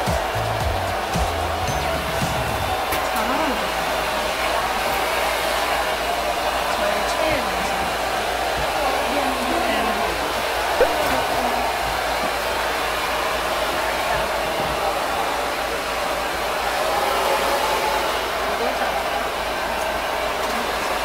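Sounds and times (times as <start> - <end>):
hair dryer blowing: 0.0 - 21.0.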